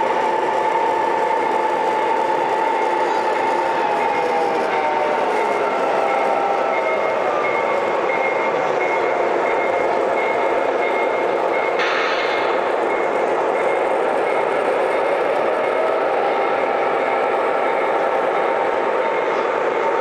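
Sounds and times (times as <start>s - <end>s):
busy hall noise: 0.0s - 20.0s
model locomotive running on track: 0.0s - 20.0s
high beeps: 6.1s - 15.9s.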